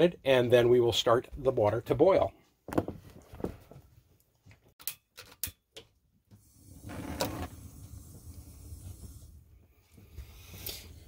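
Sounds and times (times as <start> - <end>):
gas flame rushing: 6.4 - 11.0.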